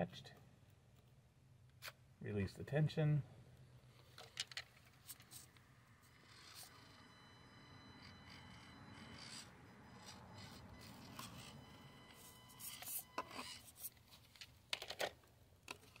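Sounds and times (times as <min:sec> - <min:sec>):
small electric motor whine: 0:06.0 - 0:13.8.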